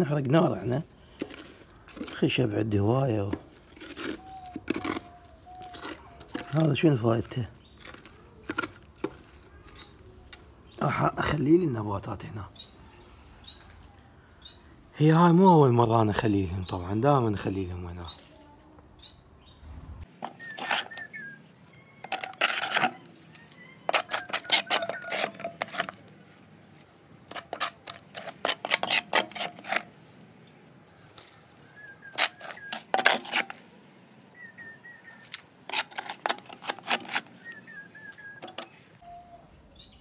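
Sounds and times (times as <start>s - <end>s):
ash being scraped by hand: 3.2s - 10.0s, 20.2s - 21.1s, 22.0s - 26.1s, 27.2s - 30.0s, 31.1s - 33.8s, 35.2s - 38.7s
faint bird chirps: 4.1s - 6.7s, 16.6s - 25.6s, 37.4s - 40.0s
charcoal clinking: 21.9s - 26.1s.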